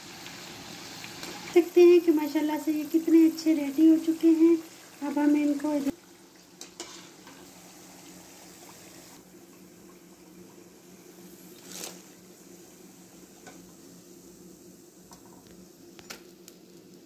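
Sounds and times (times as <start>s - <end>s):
food frying in hot oil: 0.0s - 17.0s.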